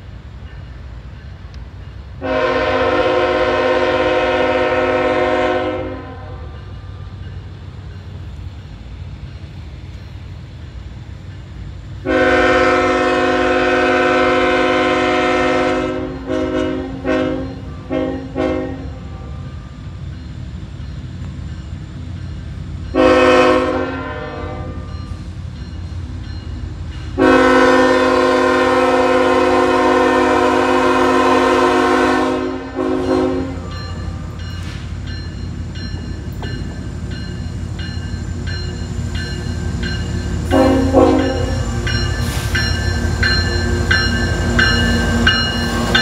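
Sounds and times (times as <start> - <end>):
locomotive air horn: 2.2 - 6.6, 12.0 - 19.3, 23.0 - 24.9, 27.2 - 33.8, 40.5 - 42.6.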